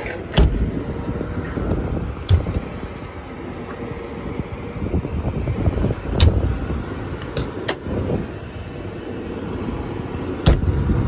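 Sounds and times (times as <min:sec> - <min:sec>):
sharp clicks and knocks: 0:00.0 - 0:00.8, 0:01.4 - 0:02.8, 0:06.1 - 0:06.5, 0:07.2 - 0:07.9
generator rumbling: 0:00.0 - 0:11.0.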